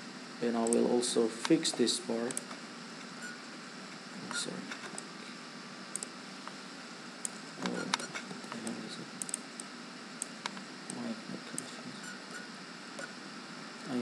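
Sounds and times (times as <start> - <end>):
microphone hiss: 0.0 - 14.0
computer mouse clicking: 2.3 - 2.6, 5.9 - 6.6, 7.2 - 11.7.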